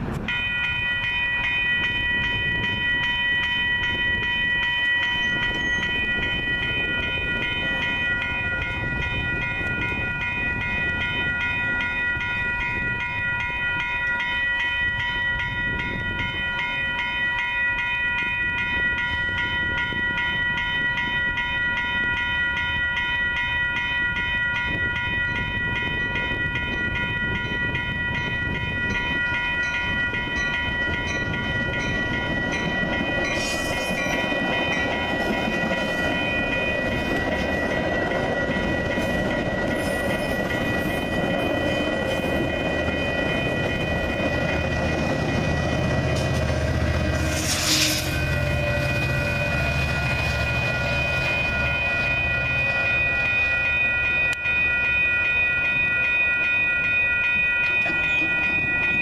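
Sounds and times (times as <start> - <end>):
crossing warning bell ringing: 0.0 - 59.0
train cars passing: 0.0 - 59.0.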